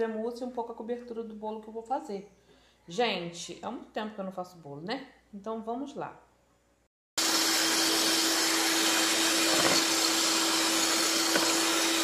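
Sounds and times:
electric mixer whipping cream: 7.2s - 12.0s.

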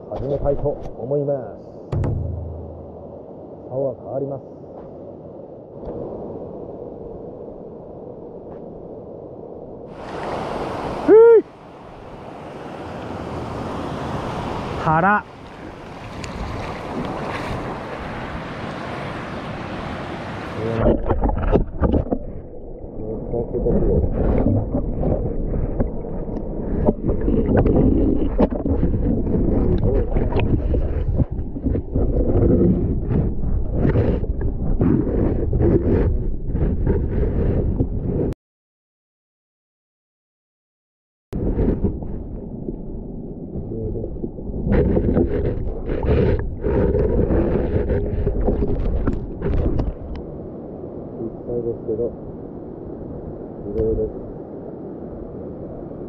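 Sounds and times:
muffled underwater river rush: 0.0s - 38.4s, 41.4s - 56.0s
short knocks: 1.9s - 3.1s
water sloshing and splashing: 13.4s - 23.0s, 23.9s - 36.0s, 44.5s - 50.3s
rustling on camera: 26.7s - 38.3s, 44.6s - 50.1s.

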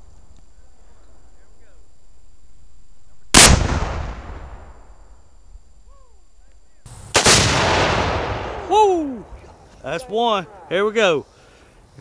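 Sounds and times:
loud explosions with rumbling decay: 3.3s - 5.1s, 7.0s - 8.7s.

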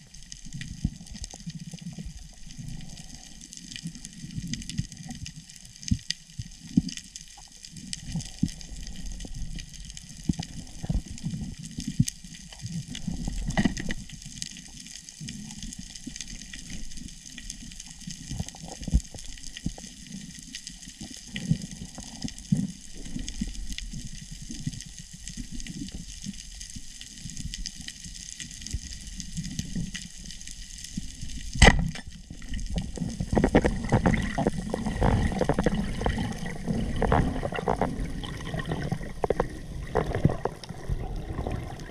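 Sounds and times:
crackling clicks: 0.0s - 41.9s
muffled underwater wash: 0.0s - 41.9s
sharp loud click: 31.6s - 32.1s.

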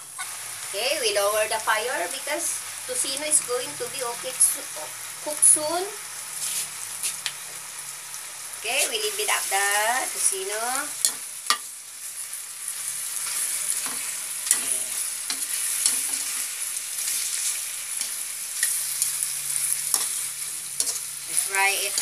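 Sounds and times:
meat sizzling in oil: 0.0s - 22.0s
tongs clicking against pan: 19.9s - 20.2s.

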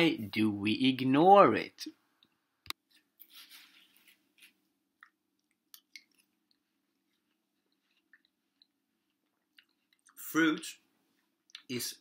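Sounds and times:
wet chewing: 5.0s - 10.2s.

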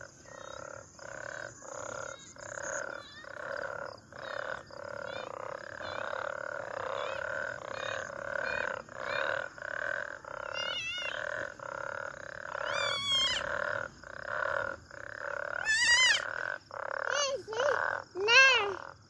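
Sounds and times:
frogs croaking: 0.0s - 19.0s
high wavering cries: 12.6s - 13.5s, 15.6s - 16.2s.

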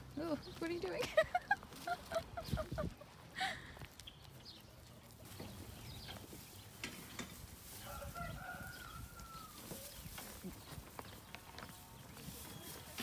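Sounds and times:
faint rooster crowing: 7.7s - 10.0s.

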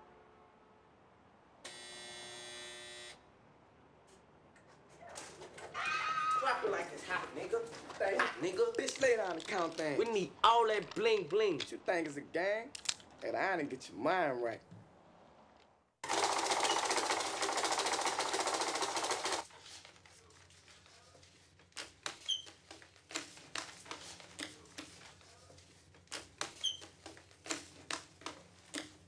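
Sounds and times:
money-counting machine riffling banknotes: 16.0s - 19.5s
paper snaps and clicks: 25.9s - 29.0s.

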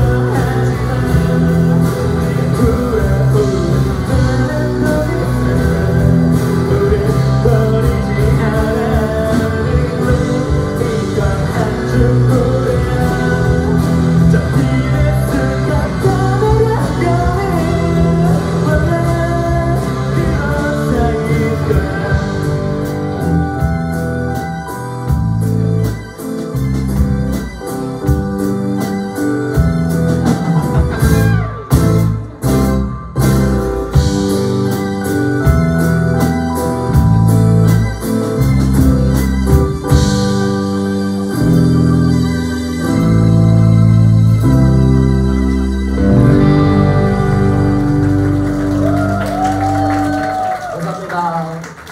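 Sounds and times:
person singing: 0.0s - 23.7s
organ-like keyboard chords: 0.0s - 50.3s
live rock band playing: 0.0s - 51.9s.

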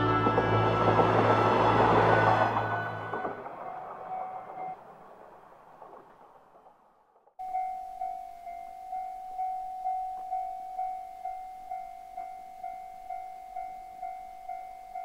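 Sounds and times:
railroad crossing warning bell: 0.0s - 4.8s, 7.4s - 15.0s.

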